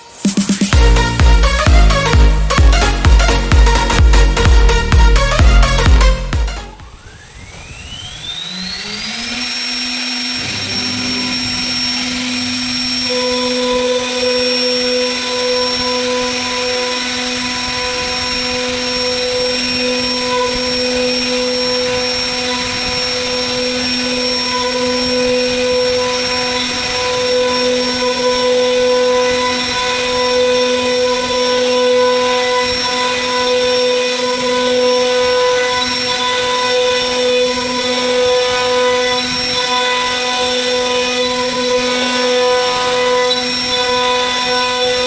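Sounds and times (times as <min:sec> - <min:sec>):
router bit carving wood: 0:00.0 - 0:45.0
router spindle whining: 0:00.0 - 0:45.0.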